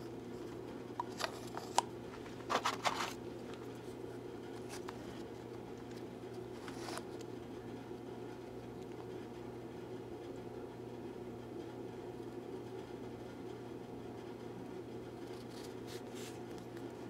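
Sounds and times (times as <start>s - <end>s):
low room hum: 0.0s - 17.0s
paper rustle: 1.1s - 3.8s, 6.5s - 7.2s.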